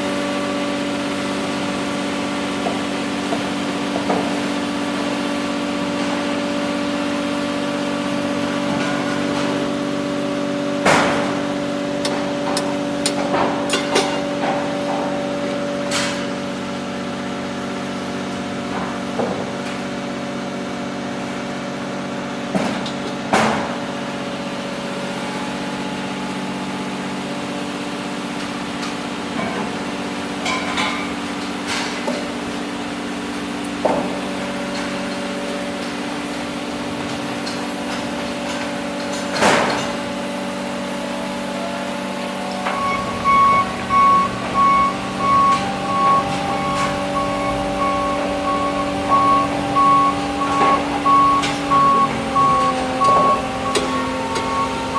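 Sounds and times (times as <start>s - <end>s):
engine idling hum: 42.2s - 54.9s
high-pitched beeping: 42.5s - 54.9s.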